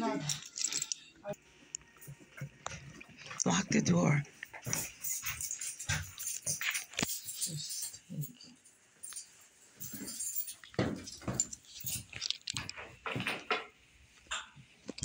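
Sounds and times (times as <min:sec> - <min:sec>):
keys jangling: 0:00.0 - 0:01.0, 0:04.5 - 0:12.9.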